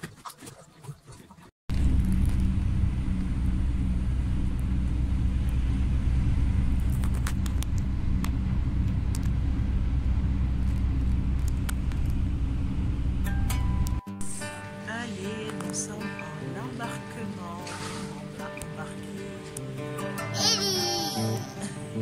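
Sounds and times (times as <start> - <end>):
car engine and tyre rumble: 1.7 - 14.0.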